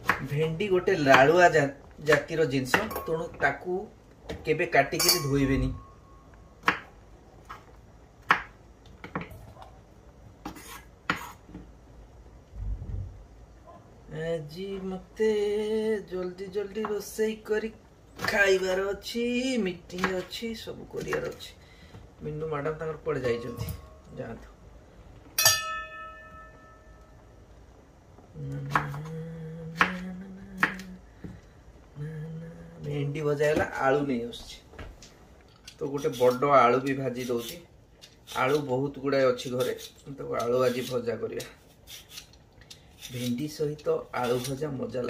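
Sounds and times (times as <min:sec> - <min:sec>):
knife chopping: 0:01.0 - 0:01.4, 0:02.1 - 0:03.0, 0:06.6 - 0:06.9, 0:10.4 - 0:11.4
metal bowl clinking and ringing: 0:05.0 - 0:06.3, 0:25.4 - 0:27.2
man humming: 0:28.3 - 0:31.0, 0:32.0 - 0:33.1.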